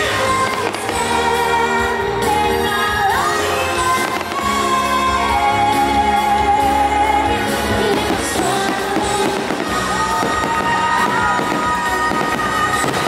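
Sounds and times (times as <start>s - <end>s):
fireworks crackling and popping: 0.0s - 1.4s, 3.8s - 4.7s, 7.9s - 13.0s
loud music: 0.0s - 13.0s.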